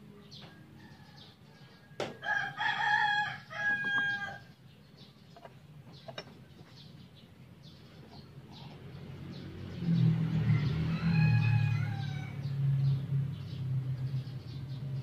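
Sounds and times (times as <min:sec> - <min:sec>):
rooster crowing: 0:00.6 - 0:04.5, 0:10.4 - 0:12.8
small birds chirping: 0:03.2 - 0:10.8, 0:11.8 - 0:15.0.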